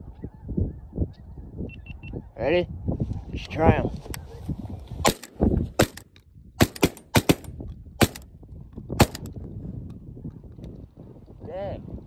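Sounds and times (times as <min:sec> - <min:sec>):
shotguns firing: 0:05.1 - 0:06.0, 0:06.6 - 0:08.2, 0:09.0 - 0:09.3.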